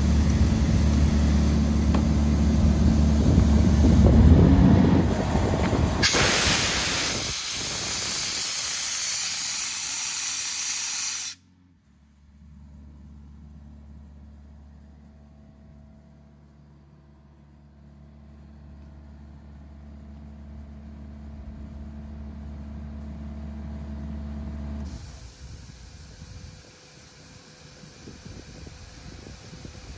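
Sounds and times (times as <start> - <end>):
diesel engine humming: 0.0 - 10.0, 11.4 - 29.9
compressed air hissing: 1.0 - 4.2, 6.0 - 11.4, 24.9 - 29.9.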